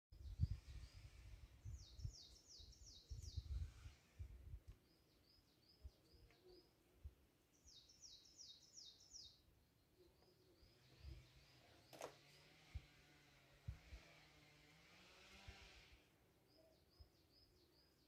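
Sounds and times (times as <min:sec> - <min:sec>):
soft bird chirps: 0:00.2 - 0:04.0, 0:04.6 - 0:12.6, 0:16.4 - 0:18.0
songbird singing falling notes: 0:04.7 - 0:06.8, 0:10.1 - 0:12.4.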